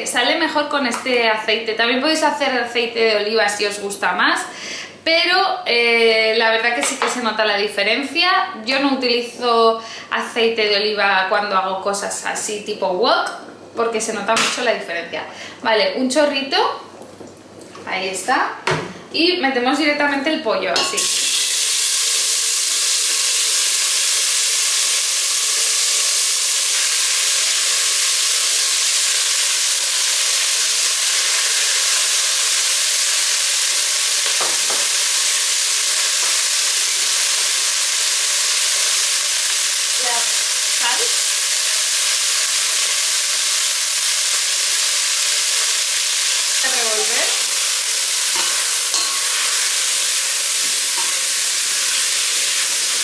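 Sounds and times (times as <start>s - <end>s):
chicken sizzling in hot oil: 21.0s - 53.0s.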